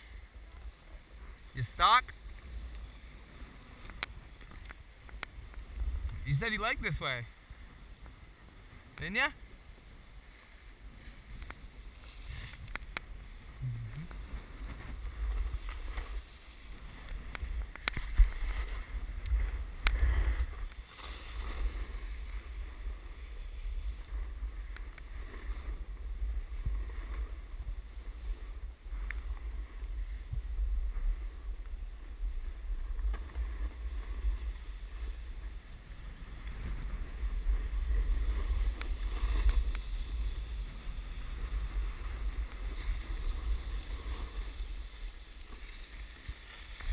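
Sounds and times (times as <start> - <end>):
snowboard scraping over snow: 0.0 - 46.9
wind buffeting microphone: 0.0 - 46.9.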